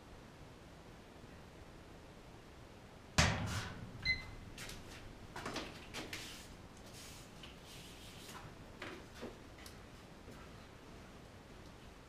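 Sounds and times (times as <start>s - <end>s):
sharp knock: 3.2s - 4.0s.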